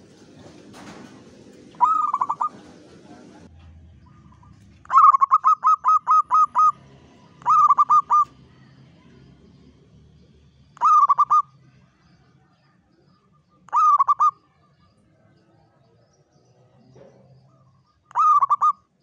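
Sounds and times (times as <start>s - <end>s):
doves cooing: 0.0s - 9.3s, 10.8s - 11.7s, 13.2s - 19.0s.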